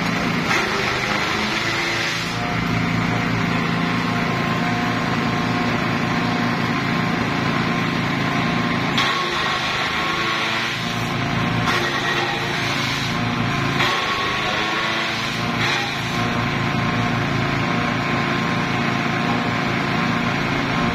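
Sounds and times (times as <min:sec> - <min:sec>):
grass being chopped: 0:00.0 - 0:05.9, 0:08.6 - 0:17.1
small engine humming: 0:00.0 - 0:20.9.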